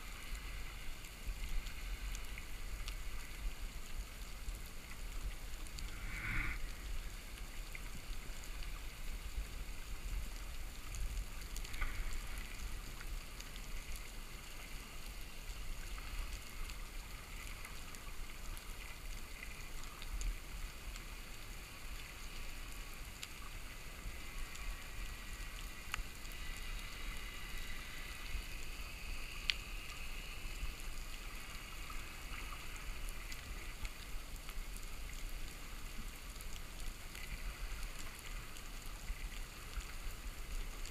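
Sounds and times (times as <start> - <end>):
underwater rumble and hiss: 0.0 - 40.9
faint sharp clicks: 0.2 - 15.2, 23.2 - 40.8.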